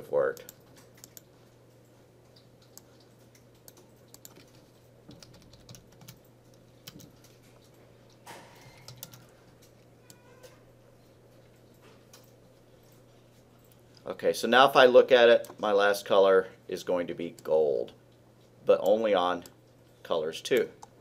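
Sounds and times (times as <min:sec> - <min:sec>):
computer keyboard typing: 0:00.4 - 0:01.3, 0:02.3 - 0:07.4, 0:08.6 - 0:10.2.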